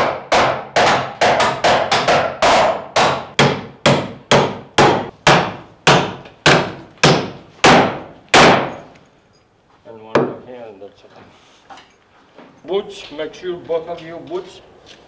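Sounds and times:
hammer blows ringing: 0.0 - 8.9.

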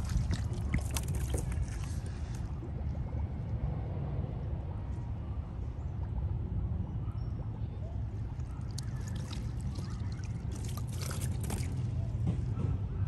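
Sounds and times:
water splashing against kayak: 0.0 - 2.7.

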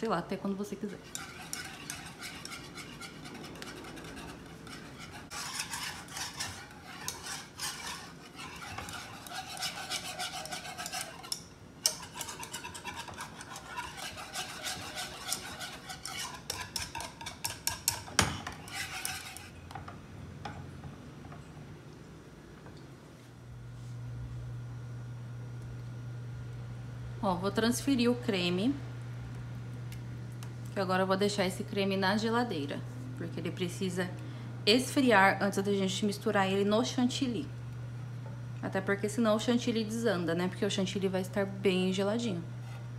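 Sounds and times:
whisk scraping metal saucepan: 0.8 - 19.6.

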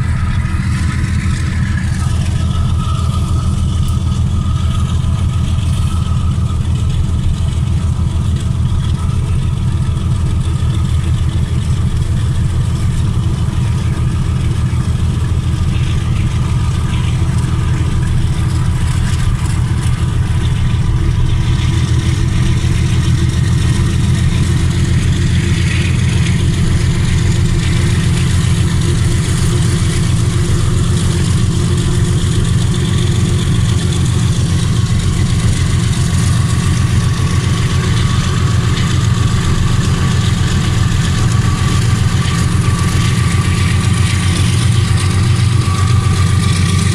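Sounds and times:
diesel locomotive engine running: 0.0 - 46.9.

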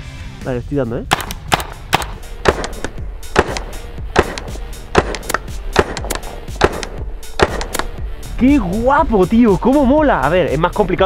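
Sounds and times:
background music: 0.0 - 11.0
paintball marker firing pops: 1.1 - 8.0.

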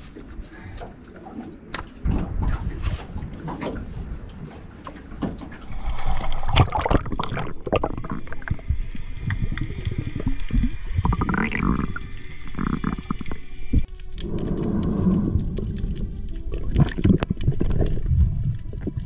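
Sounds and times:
muffled underwater bubbling: 5.7 - 19.0.

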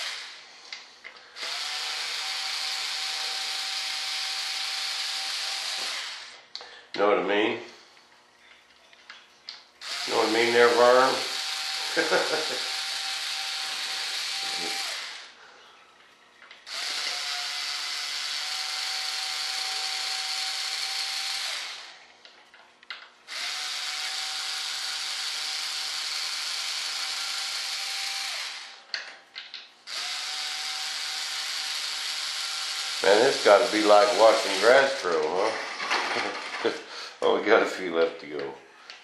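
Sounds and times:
cordless drill motor whine: 0.0 - 0.4, 1.4 - 6.4, 9.8 - 15.4, 16.6 - 22.0, 23.3 - 28.8, 29.9 - 35.4.

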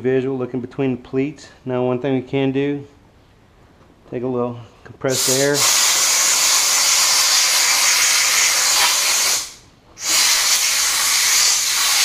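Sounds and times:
compressed-air blow gun hissing: 5.1 - 12.0.

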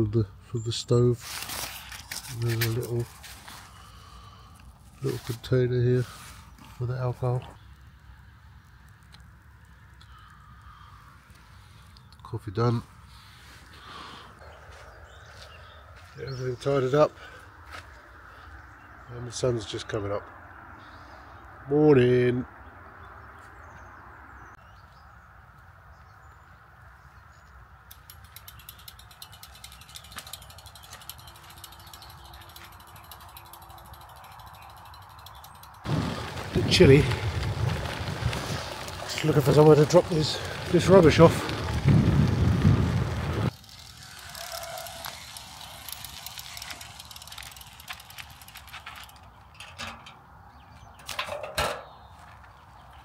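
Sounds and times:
bike freehub ticking: 27.9 - 49.7.

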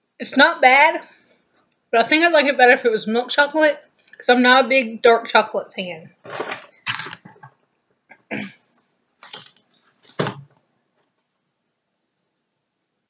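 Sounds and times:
plastic wrapping crinkling: 6.2 - 7.6, 9.2 - 10.6.

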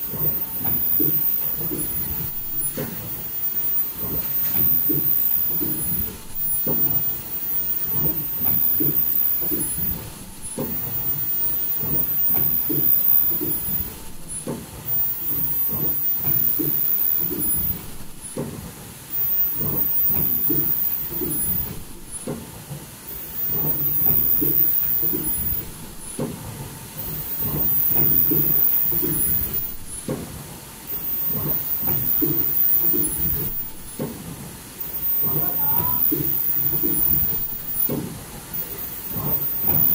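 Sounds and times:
machine clatter and hiss: 0.0 - 39.9
high-pitched machine whine: 34.8 - 37.9.

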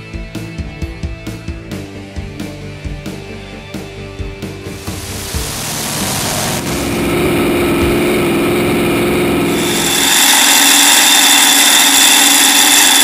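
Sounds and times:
tractor engine running hard: 4.6 - 13.0.

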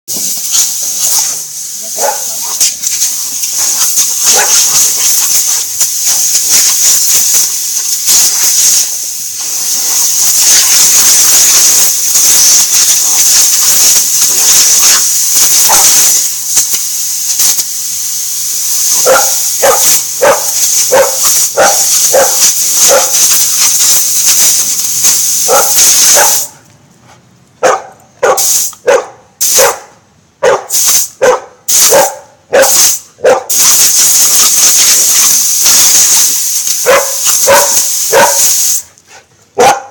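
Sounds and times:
compressed air hissing from hose: 0.1 - 26.6, 28.4 - 28.8, 29.4 - 29.7, 30.7 - 39.0
dog barking and yipping: 1.9 - 2.6, 3.2 - 7.1, 12.6 - 16.2, 18.8 - 23.8, 25.4 - 26.6, 27.6 - 33.6, 36.8 - 38.6, 39.6 - 39.9.

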